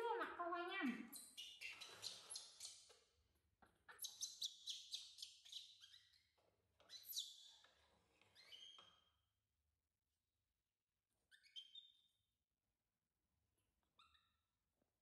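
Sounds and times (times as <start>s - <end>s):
baby monkey squeaking and chirping: 1.1s - 2.8s, 3.9s - 6.1s.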